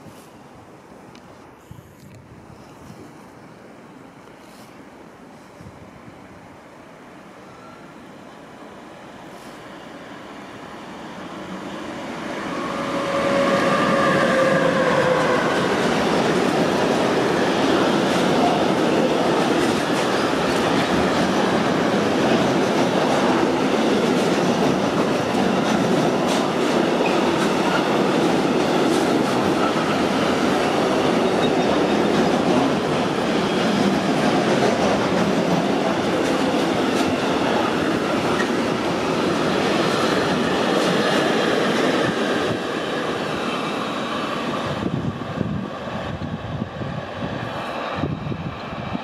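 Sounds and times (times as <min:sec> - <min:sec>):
train wheels rolling on rails: 0:09.1 - 0:49.0
rail clicks: 0:14.2 - 0:45.0.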